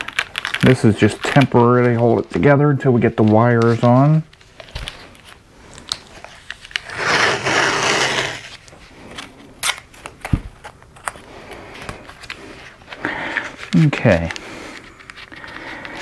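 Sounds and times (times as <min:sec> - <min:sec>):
tape pulled off roll: 0:06.2 - 0:08.7.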